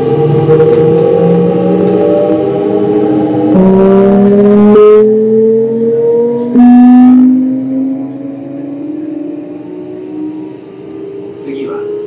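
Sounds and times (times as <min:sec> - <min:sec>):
electric train motors whining: 0:00.0 - 0:04.8, 0:08.8 - 0:12.0.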